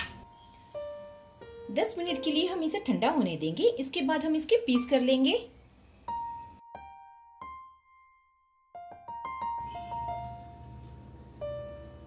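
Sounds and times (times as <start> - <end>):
slow piano melody: 0.0 - 2.9, 6.0 - 12.0.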